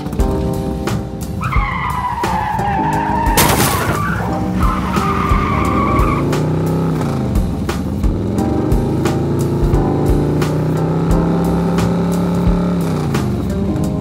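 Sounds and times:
background music with beat: 0:00.0 - 0:14.0
cartoon skidding squeal: 0:01.4 - 0:06.4.

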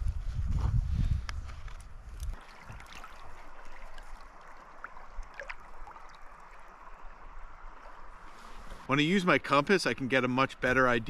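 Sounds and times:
faint water ticks: 0:02.1 - 0:08.8
river water gurgling: 0:02.3 - 0:09.6.

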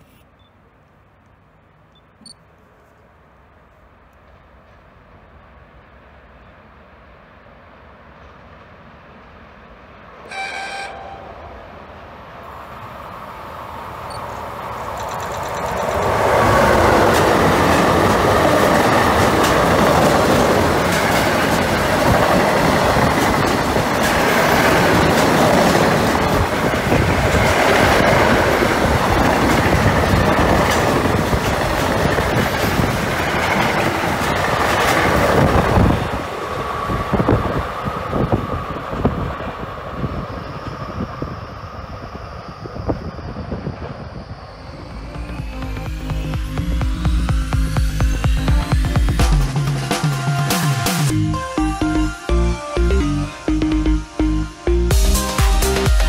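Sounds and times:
freight train passing: 0:02.5 - 0:56.0
train horn: 0:10.2 - 0:11.9
wheels clattering over rail joints: 0:14.1 - 0:39.1.

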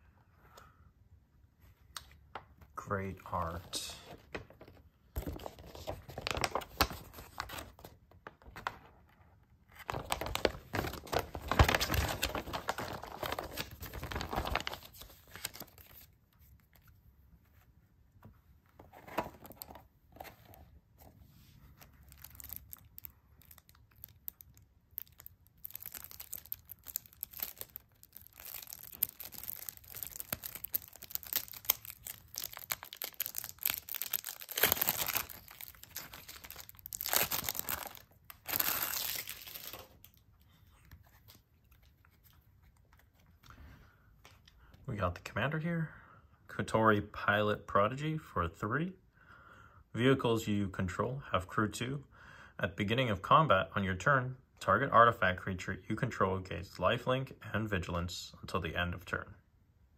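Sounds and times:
paper rustling: 0:03.9 - 0:08.9, 0:09.7 - 0:22.7
plastic wrap tearing and crinkling: 0:05.4 - 0:07.8, 0:09.8 - 0:16.1, 0:21.8 - 0:40.2.

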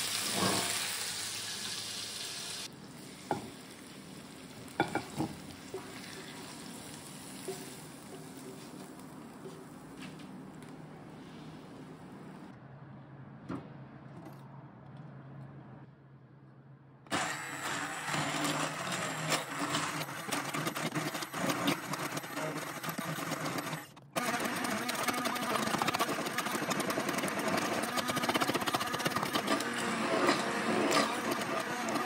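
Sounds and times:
stick blender running: 0:17.1 - 0:32.0.

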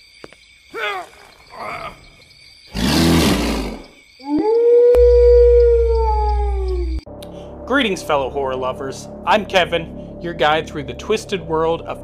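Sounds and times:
wolf howl: 0:04.2 - 0:07.0.

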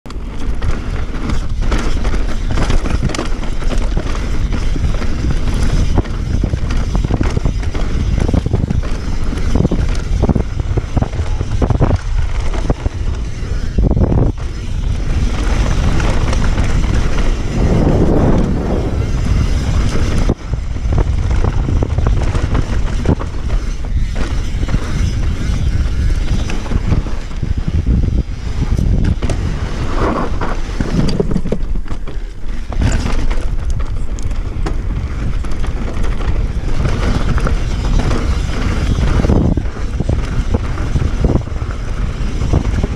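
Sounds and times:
wind buffeting microphone: 0:00.1 - 0:42.9
steady low rumble: 0:13.8 - 0:22.3.

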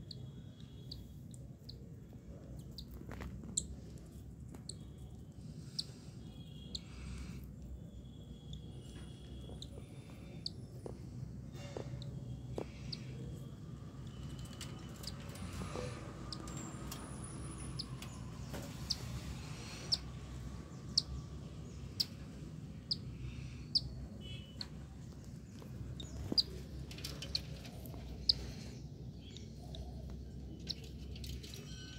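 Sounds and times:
chick peeping: 0:20.9 - 0:21.2, 0:22.8 - 0:24.8.

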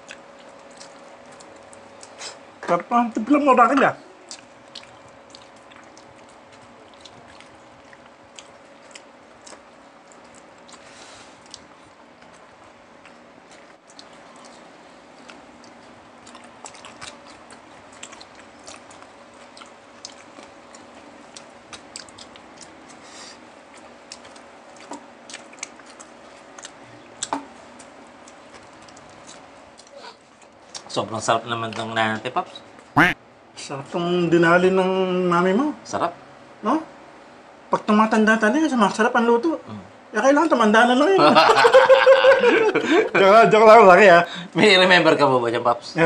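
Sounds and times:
chewing and crunching: 0:00.0 - 0:02.9, 0:04.2 - 0:31.0
faint steady hum: 0:00.0 - 0:46.0.

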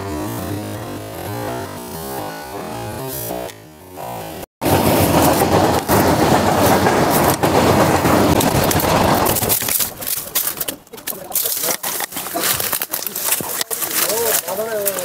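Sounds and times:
dry leaves and brush rustling: 0:04.6 - 0:15.0
twigs snapping: 0:08.4 - 0:15.0.

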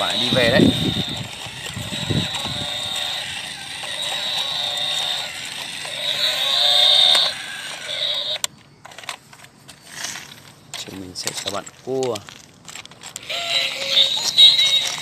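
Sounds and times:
toy motor whirring: 0:00.0 - 0:09.2, 0:13.1 - 0:15.0.

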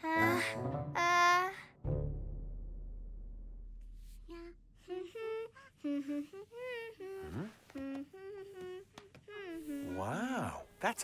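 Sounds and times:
girl humming: 0:04.2 - 0:10.5.

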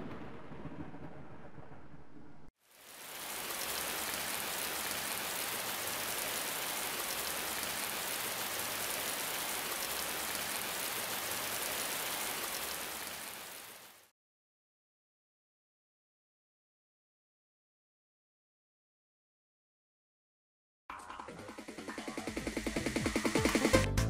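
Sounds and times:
steady rain: 0:02.6 - 0:14.1.

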